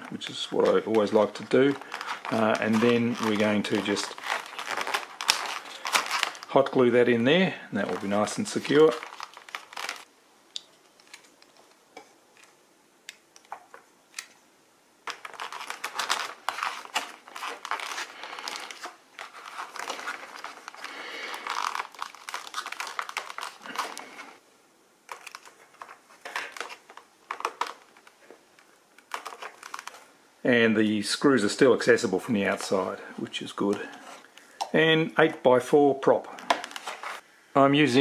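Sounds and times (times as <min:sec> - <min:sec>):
foam and plastic rustling: 0:00.0 - 0:10.1, 0:15.1 - 0:24.4, 0:25.1 - 0:30.1, 0:36.3 - 0:37.2.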